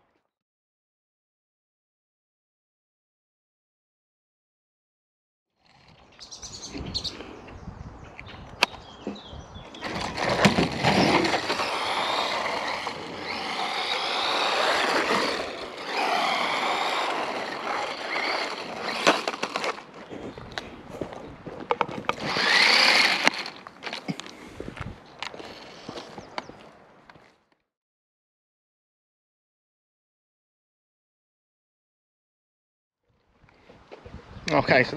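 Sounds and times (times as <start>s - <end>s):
tyres rolling over asphalt: 9.7s - 26.7s
toy car electric motor whining: 9.8s - 19.9s, 22.0s - 24.2s, 25.4s - 26.1s.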